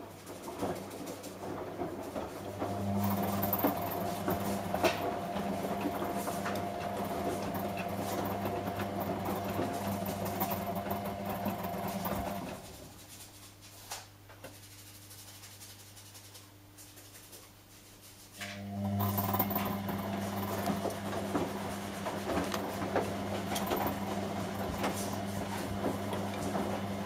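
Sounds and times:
laundry tumbling in drums: 0:00.0 - 0:13.2, 0:18.9 - 0:27.0
washing machine motor hum: 0:00.0 - 0:13.2, 0:18.4 - 0:27.0
washing machine clicks: 0:18.5 - 0:27.0.

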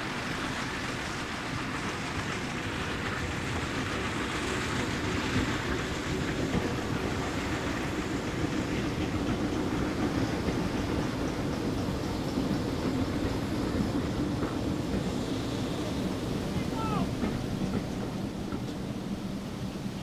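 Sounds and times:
steam locomotive running: 0:00.0 - 0:20.0
wheels clicking over rail joints: 0:00.7 - 0:20.0.

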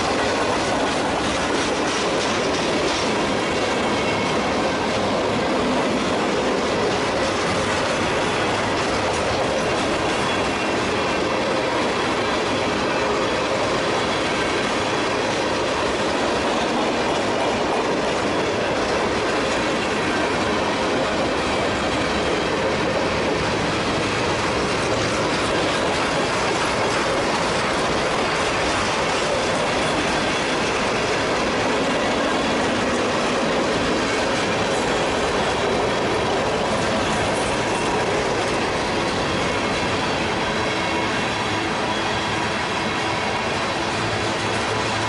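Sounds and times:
train wheels rolling on rails: 0:00.0 - 0:45.0.

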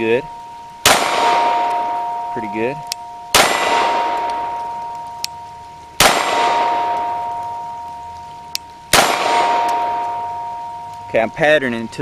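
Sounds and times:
steel target ringing: 0:00.0 - 0:08.2, 0:08.9 - 0:11.4
pistol shots: 0:00.8 - 0:02.3, 0:03.3 - 0:04.8, 0:06.0 - 0:07.4, 0:08.9 - 0:10.5.

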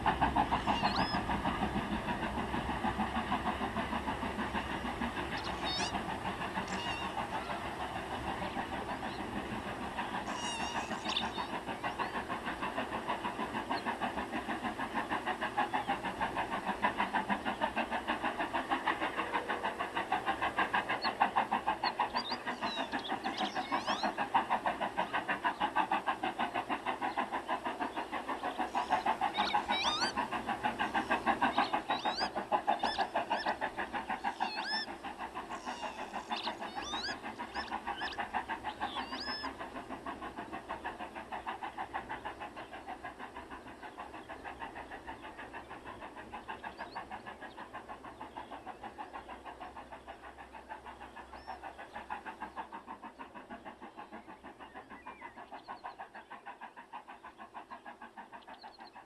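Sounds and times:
model steam locomotive chuffing: 0:00.0 - 0:59.0
short high squeaks: 0:10.3 - 0:11.1.

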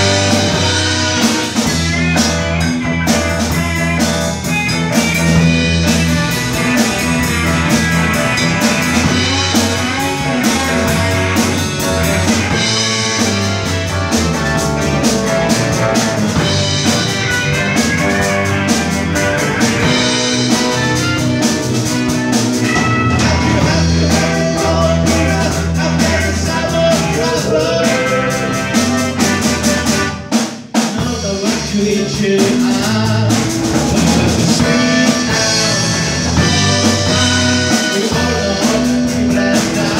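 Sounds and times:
live rock band playing: 0:00.0 - 0:39.9.

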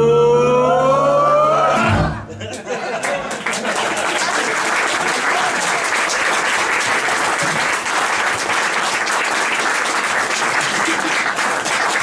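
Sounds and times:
audience applauding: 0:02.9 - 0:12.0.

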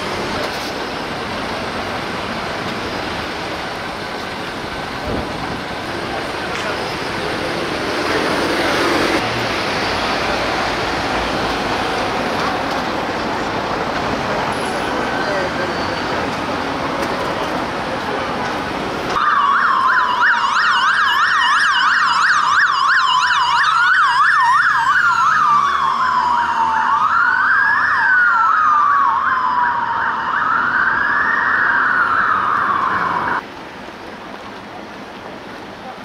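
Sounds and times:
traffic noise: 0:00.0 - 0:36.0
police siren wail: 0:19.2 - 0:33.4
police siren yelp: 0:19.2 - 0:33.4.

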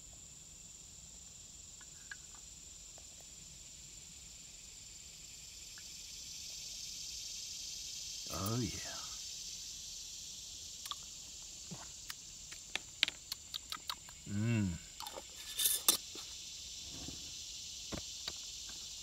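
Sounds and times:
insects chorus: 0:00.0 - 0:19.0
person humming: 0:14.3 - 0:14.9.

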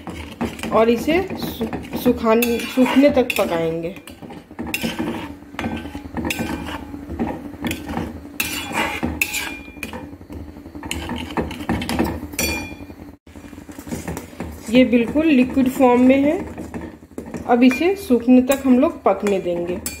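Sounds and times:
stirring wet pulp: 0:00.0 - 0:10.0, 0:13.4 - 0:17.7
spatula scraping a steel pan: 0:00.0 - 0:12.8, 0:13.8 - 0:20.0.

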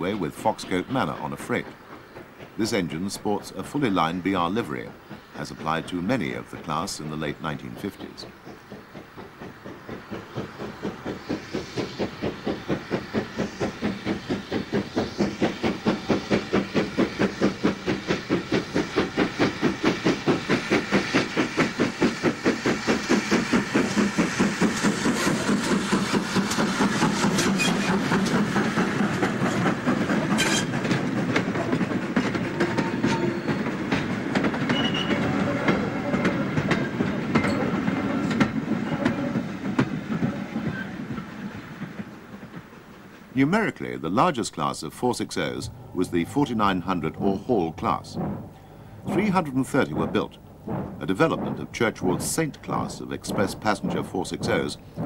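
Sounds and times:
steam locomotive exhaust beats: 0:00.0 - 0:55.0
wagon wheels clicking over rail joints: 0:22.9 - 0:43.4, 0:49.1 - 0:55.0.

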